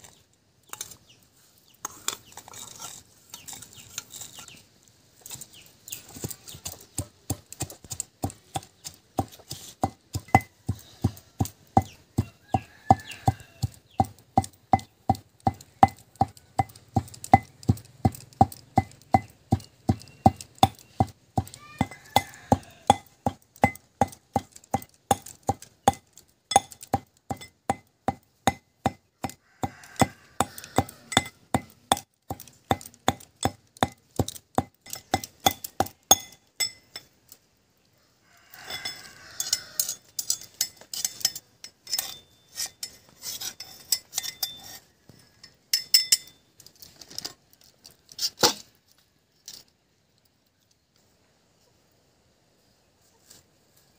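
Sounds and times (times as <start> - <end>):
metal scraping and knocking: 1.8 - 4.6, 6.1 - 37.1, 38.7 - 47.3
metal pestle pounding in mortar: 7.0 - 36.4.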